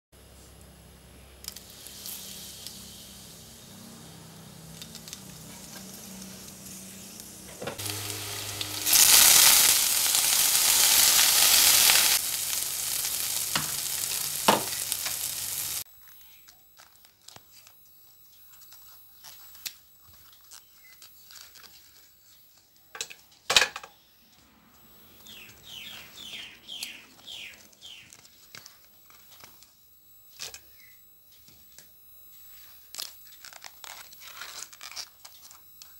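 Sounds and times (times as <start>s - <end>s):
hot oil sizzling in a wok: 1.5s - 15.8s
bracts being peeled: 32.6s - 35.7s.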